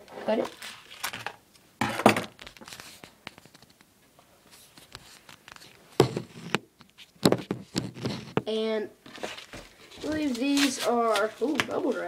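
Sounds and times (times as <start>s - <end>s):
padded mailer rustling: 9.1s - 12.0s.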